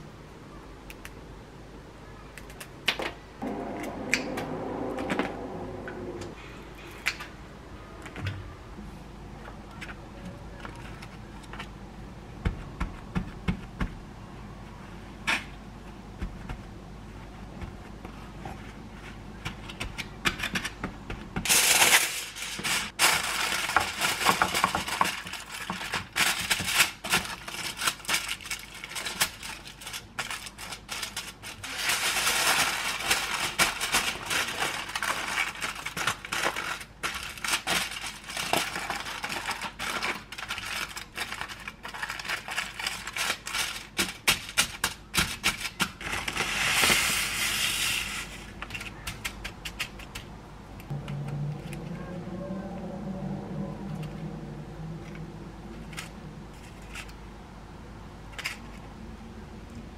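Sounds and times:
paper towel rustling: 0:21.5 - 0:26.4, 0:27.4 - 0:44.0
aluminium foil crinkling: 0:21.5 - 0:50.2
salt pouring from a bag: 0:31.0 - 0:35.9.

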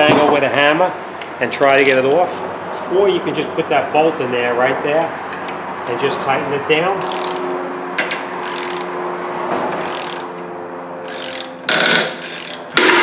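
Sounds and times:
ratchet wrench clicking: 0:01.2 - 0:02.2, 0:06.9 - 0:08.9, 0:09.8 - 0:10.4, 0:11.0 - 0:12.8.

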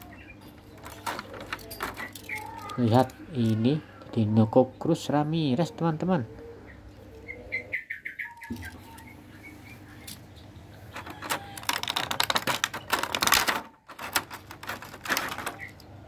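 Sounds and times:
plastic blister tray crackling: 0:00.0 - 0:03.6, 0:10.9 - 0:16.0.

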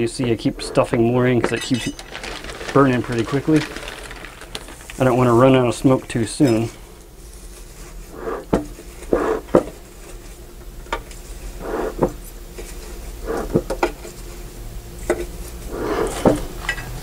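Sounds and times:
dry hay rustling and crackling: 0:01.6 - 0:07.8.

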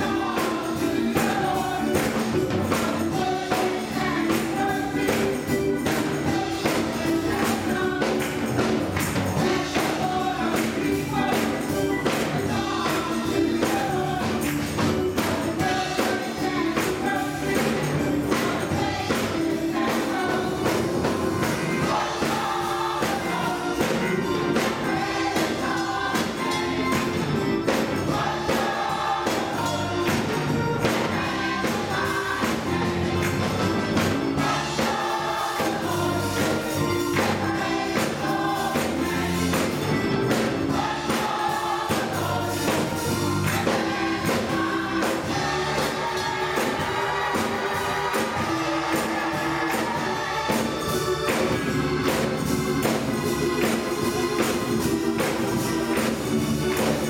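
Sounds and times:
gospel choir singing: 0:00.0 - 0:57.0
keyboard accompaniment: 0:00.0 - 0:57.0
hand claps: 0:07.4 - 0:10.0, 0:33.2 - 0:35.0.

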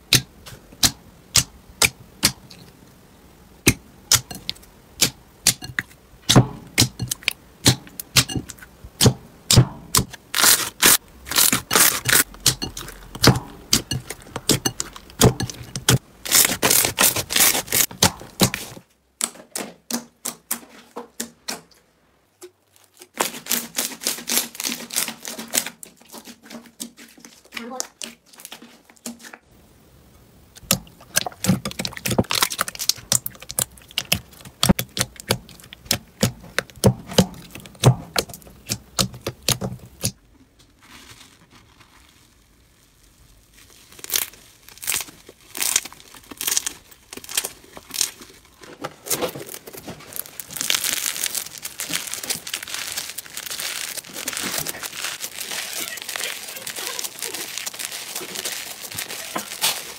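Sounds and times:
slime clicking and popping: 0:00.1 - 0:02.7, 0:03.6 - 0:19.3, 0:30.6 - 0:40.2
slime crackling when stretched: 0:09.9 - 0:18.8, 0:22.6 - 0:26.3, 0:30.6 - 0:40.1, 0:40.7 - 0:59.9.

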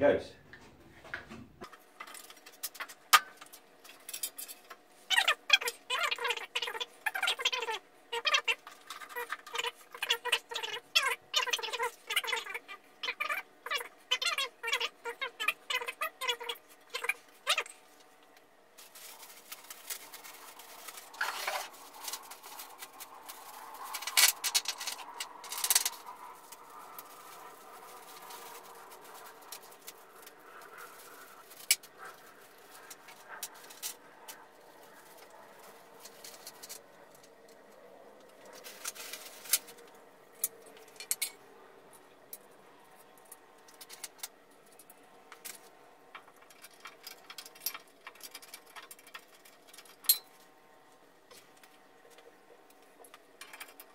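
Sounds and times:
metal parts clicking and rattling: 0:01.6 - 0:17.7, 0:18.8 - 0:30.3, 0:40.4 - 0:41.4, 0:43.2 - 0:50.4, 0:53.1 - 0:53.9.

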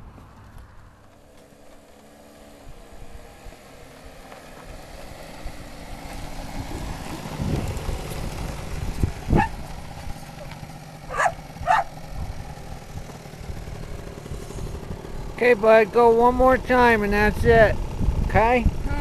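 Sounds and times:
quad atv engine running: 0:00.0 - 0:19.0.

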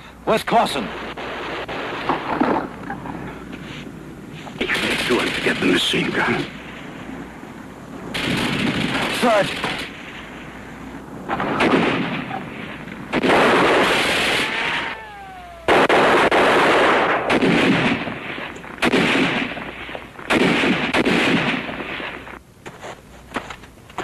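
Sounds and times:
machine-gun fire: 0:04.6 - 0:06.4, 0:08.1 - 0:10.0, 0:11.3 - 0:14.8, 0:15.7 - 0:22.1
falling whine: 0:09.9 - 0:17.2.

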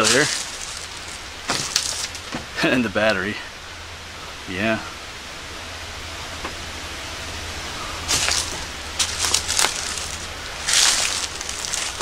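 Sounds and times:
footsteps rustling through dry leaves: 0:00.0 - 0:03.1, 0:07.6 - 0:12.0.

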